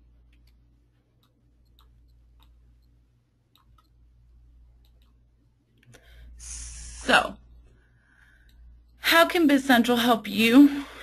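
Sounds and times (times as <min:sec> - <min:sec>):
faint low hum: 0:00.0 - 0:11.0
soft clicks: 0:00.2 - 0:04.2, 0:04.8 - 0:06.0.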